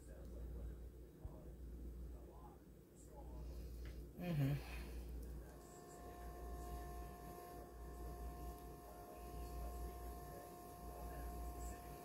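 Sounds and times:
low room hum drone: 0.0 - 12.0
thin even whine: 5.3 - 12.0.

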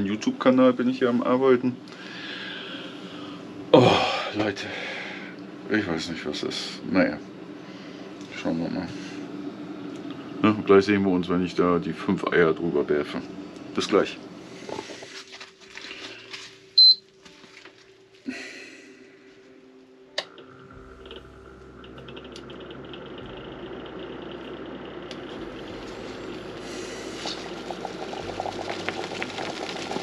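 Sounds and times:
short high beep: 16.8 - 17.0
pot of water heating: 20.2 - 30.0.

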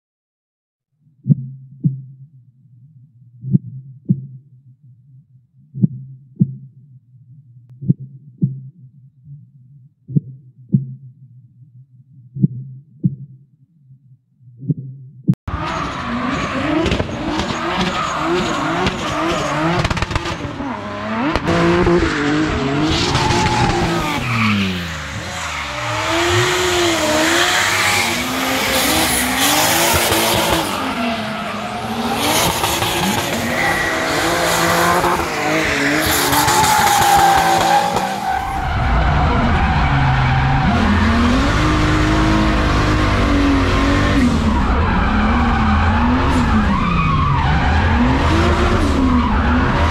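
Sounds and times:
car engine revving hard: 15.5 - 46.7.

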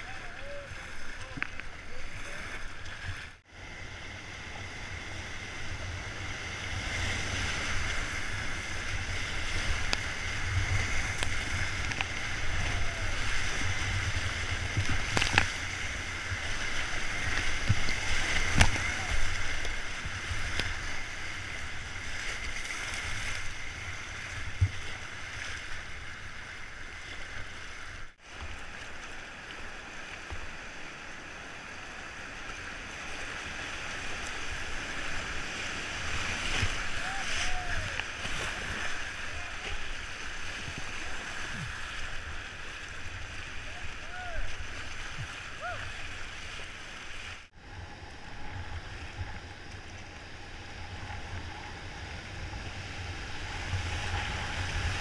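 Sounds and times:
whitewater rapids rushing: 3.8 - 24.4, 32.8 - 47.4.

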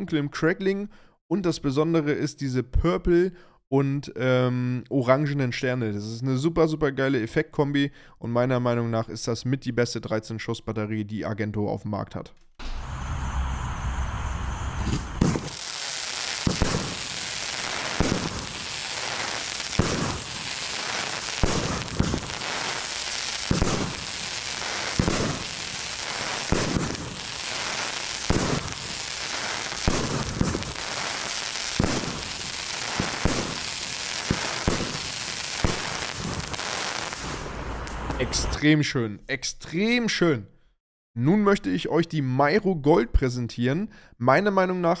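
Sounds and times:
firework bangs: 14.8 - 38.4
firework crackling: 14.8 - 38.5.

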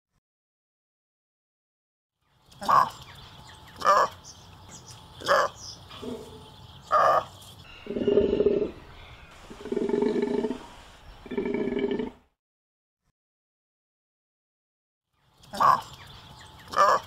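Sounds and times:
animal calling: 2.6 - 3.0, 3.8 - 4.2, 5.2 - 12.2, 15.5 - 15.9, 16.7 - 17.0.

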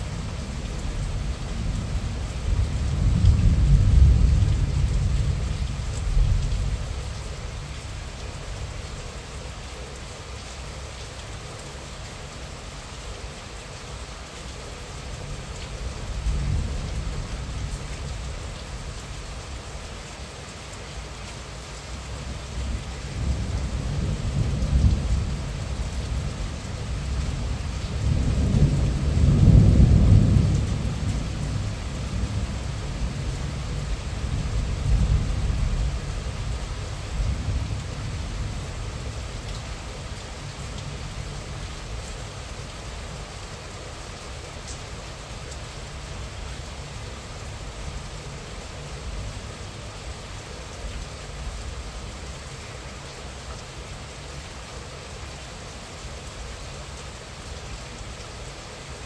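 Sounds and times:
low rumble of thunder: 0.0 - 8.8, 15.8 - 19.5, 22.3 - 42.4
steady rain falling: 0.0 - 59.0.

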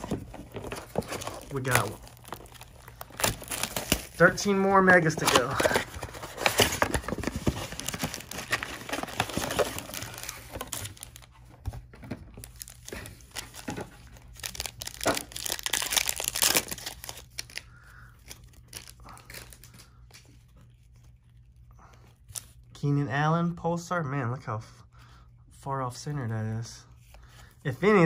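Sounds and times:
plastic wrapping tearing and crinkling: 0.0 - 11.4, 12.4 - 21.2.

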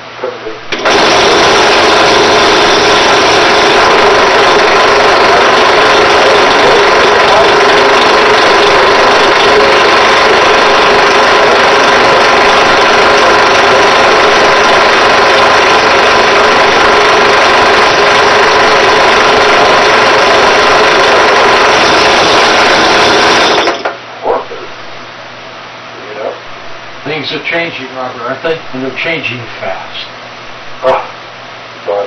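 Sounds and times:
drill press running: 0.7 - 24.0.

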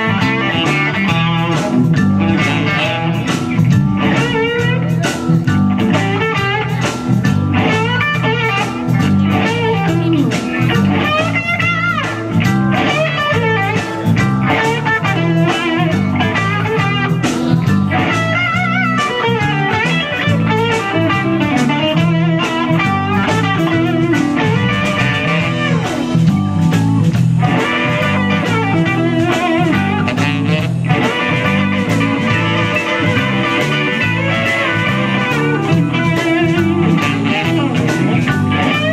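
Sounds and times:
electric guitar lead: 0.0 - 38.9
live blues band playing: 0.0 - 38.9.

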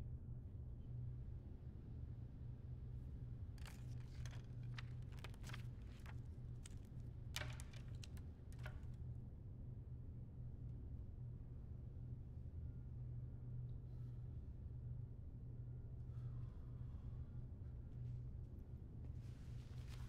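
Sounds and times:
papers rustling and objects clicking: 3.6 - 9.0, 19.2 - 20.0.

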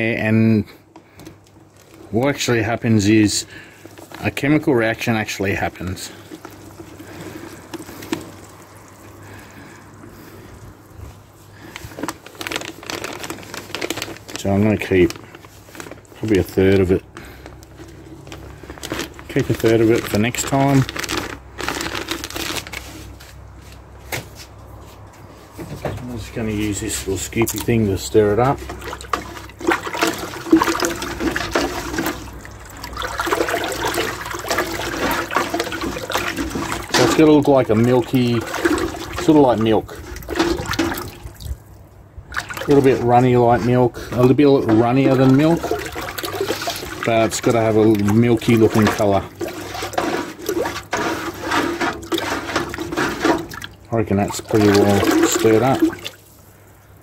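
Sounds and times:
slurry sloshing in metal bucket: 0.0 - 24.0, 24.7 - 57.0
powder pouring into water: 1.6 - 22.8, 26.5 - 56.6
scoop clicks and scrapes: 5.5 - 9.2, 26.6 - 41.6, 42.4 - 56.2.

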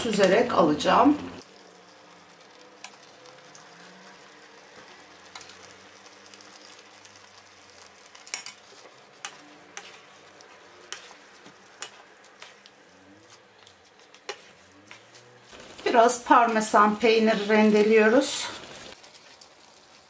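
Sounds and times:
sauce simmering with faint sizzle: 1.3 - 20.0
wooden spoons clicking against pan: 10.8 - 12.7.

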